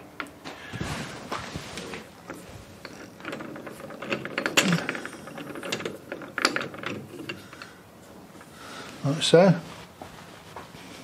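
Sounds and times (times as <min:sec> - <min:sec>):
metal clicks and rattles: 0:02.2 - 0:07.7.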